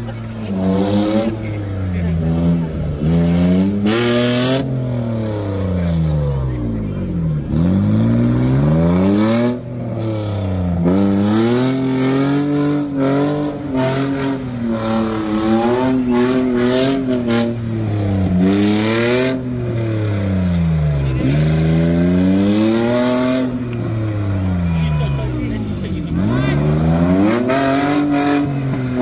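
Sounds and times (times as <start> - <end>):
tractor engine revving: 0.0 - 29.0.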